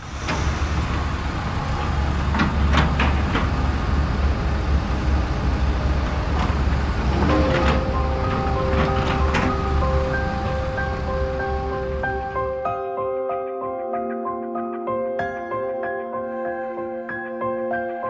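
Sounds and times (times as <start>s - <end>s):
heavy machinery engine rumble: 0.0s - 12.7s.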